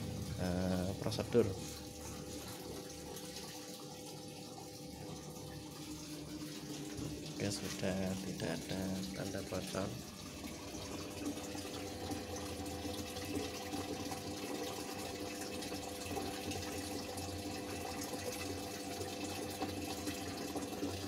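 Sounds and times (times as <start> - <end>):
steady hum: 0.0 - 14.1
water running into washing machine: 0.0 - 21.0.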